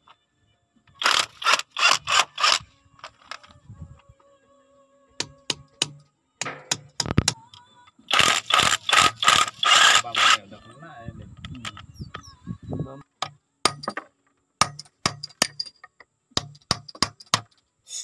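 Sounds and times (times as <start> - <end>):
sharp clicks: 6.7 - 10.4.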